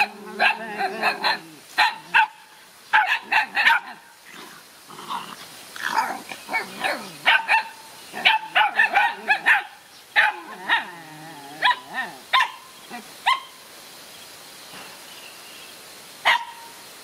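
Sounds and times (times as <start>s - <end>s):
young dogs yapping: 0.0s - 4.4s, 5.1s - 13.6s.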